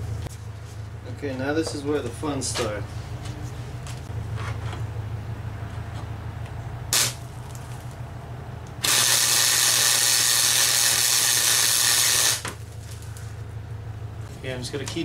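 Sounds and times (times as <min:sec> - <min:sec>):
welding arc crackle: 0:06.9 - 0:07.8, 0:08.8 - 0:13.3.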